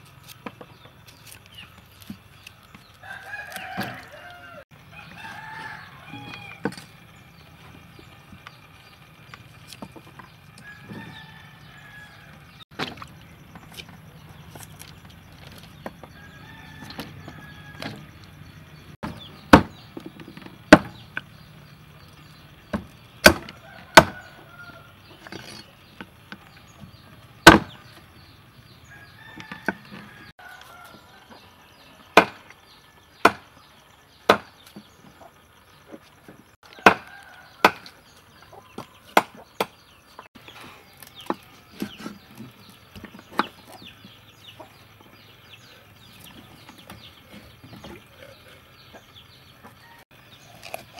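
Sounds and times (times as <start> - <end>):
chickens clucking and crowing: 2.4 - 50.5
knife chopping on wooden block: 23.2 - 24.2, 32.2 - 32.4.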